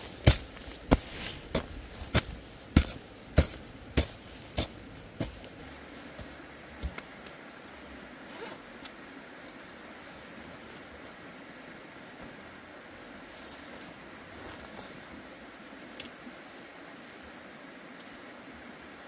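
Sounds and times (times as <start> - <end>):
hoe chopping into dry soil: 0.0 - 5.5
jacket zip being undone: 8.2 - 8.9.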